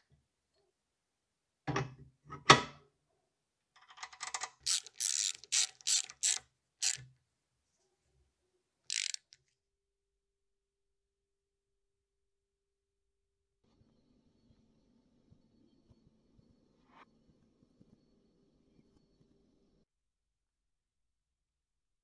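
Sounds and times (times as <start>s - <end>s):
socket ratchet clicking: 4.0s - 7.0s, 8.9s - 9.4s.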